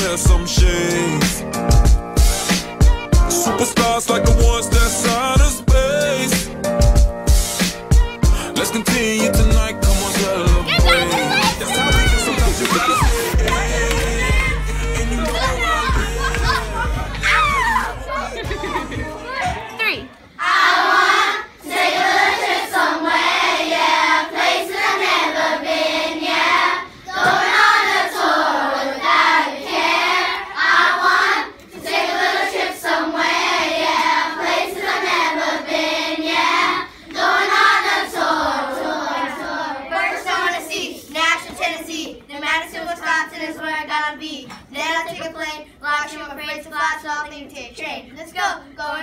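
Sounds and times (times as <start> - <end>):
children singing in unison: 20.4 - 40.8.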